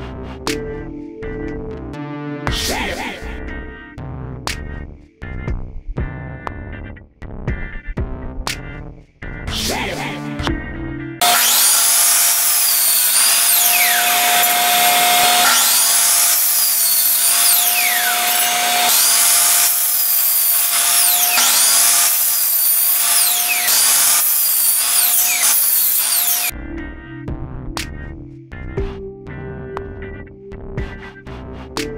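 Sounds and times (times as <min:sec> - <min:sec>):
miter saw cutting wood: 0:11.2 - 0:26.5
shop vacuum humming: 0:11.2 - 0:26.5.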